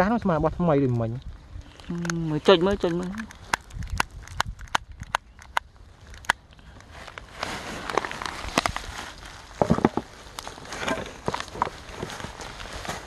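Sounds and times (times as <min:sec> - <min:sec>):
plastic rubbish crinkling underfoot: 0:06.0 - 0:13.0.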